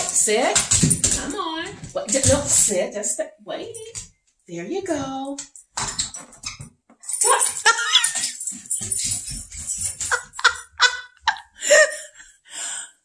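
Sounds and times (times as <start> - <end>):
dog whining and yelping: 7.6 - 10.6.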